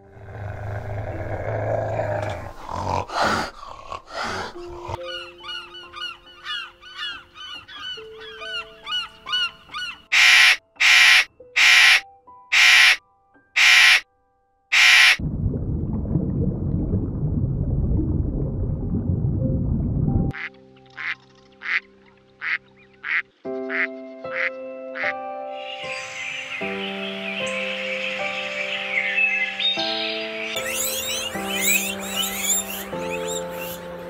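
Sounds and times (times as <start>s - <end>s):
birds chirping: 5.0s - 13.0s, 13.6s - 14.0s, 25.6s - 34.0s
macaws squawking: 5.0s - 13.0s, 13.6s - 14.0s, 14.7s - 15.2s.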